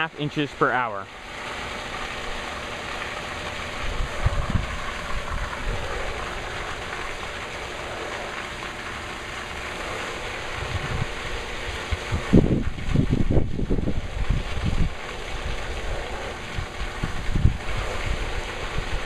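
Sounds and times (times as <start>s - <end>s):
water falling on wet ground: 0.0s - 19.0s
wind buffeting microphone: 3.5s - 6.8s, 10.4s - 19.0s.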